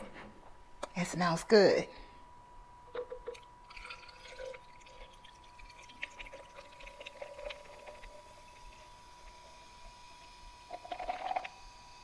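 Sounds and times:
soda trickling and fizzing: 3.3 - 12.0.

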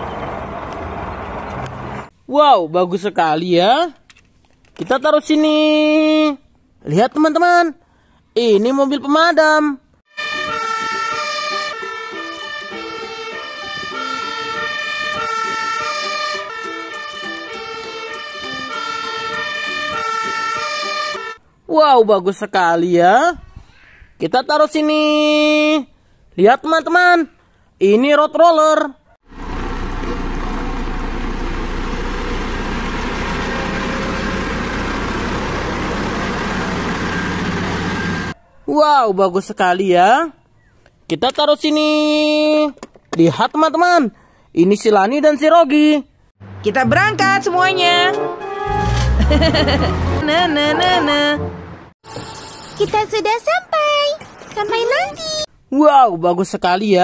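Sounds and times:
diesel engine hum: 0.0 - 2.1, 29.3 - 38.4, 46.4 - 52.0
fire engine two-tone siren: 10.1 - 21.4, 33.3 - 38.4.

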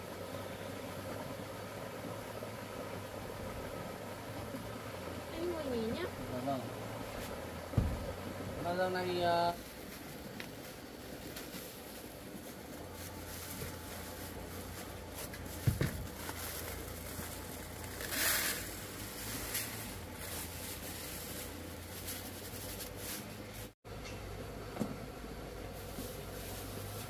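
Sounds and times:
low steady hum: 0.0 - 27.0
soft knock: 7.7 - 8.1.

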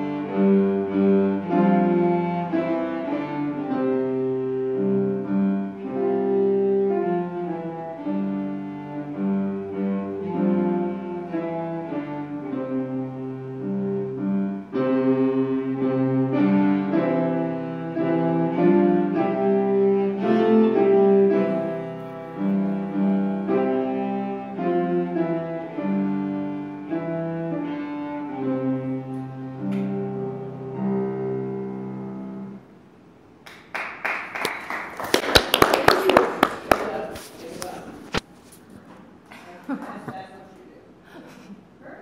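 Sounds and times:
bowed cello melody: 0.0 - 32.7
applause: 33.4 - 37.3.

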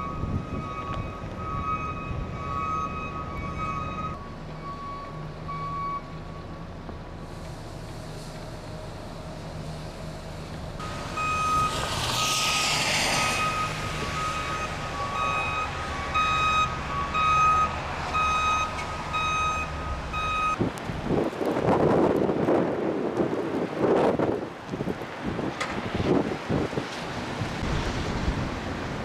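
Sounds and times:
wind buffeting microphone: 0.0 - 2.5, 20.2 - 29.0
backup alarm beeping: 0.0 - 6.5, 10.8 - 11.8, 13.4 - 20.6
low engine hum: 0.0 - 21.0.

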